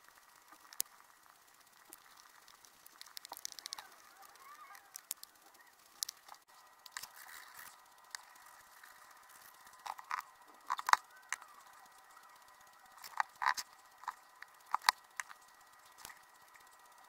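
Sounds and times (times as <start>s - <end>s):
art tools clicking and tapping: 1.8s - 16.8s.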